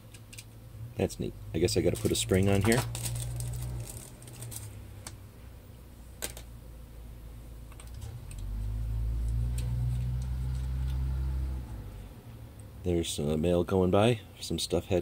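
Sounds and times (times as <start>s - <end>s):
low steady hum: 0.0s - 15.0s
plastic bag rustling: 1.6s - 5.0s.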